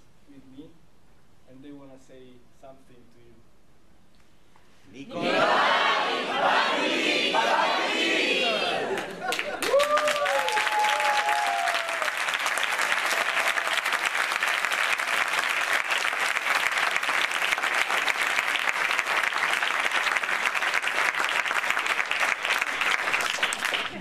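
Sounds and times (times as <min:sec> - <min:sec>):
cheering shouts: 0:07.3 - 0:12.2
audience applauding: 0:08.7 - 0:24.0.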